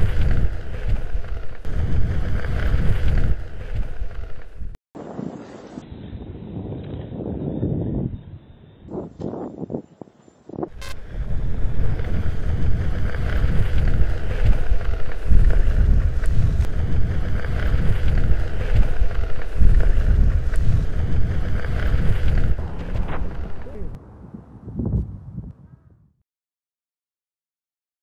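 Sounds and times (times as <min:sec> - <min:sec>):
wind buffeting microphone: 0:05.8 - 0:26.1.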